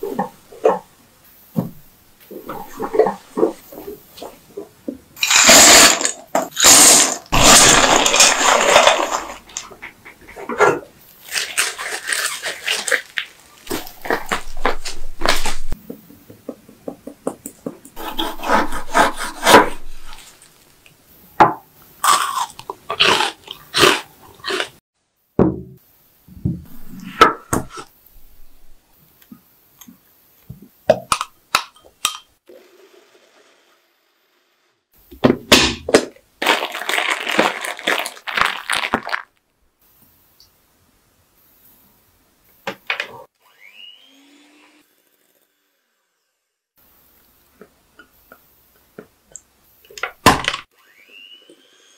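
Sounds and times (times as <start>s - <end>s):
knife sawing through nougat: 18.0s - 20.2s.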